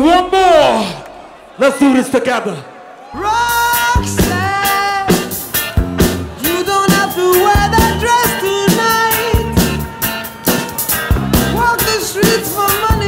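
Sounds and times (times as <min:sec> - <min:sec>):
electronic dance music: 0:03.2 - 0:13.0.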